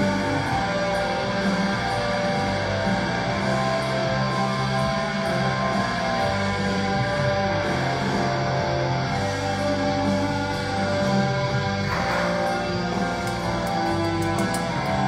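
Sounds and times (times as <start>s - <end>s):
guitar music with low notes: 0.0s - 15.0s.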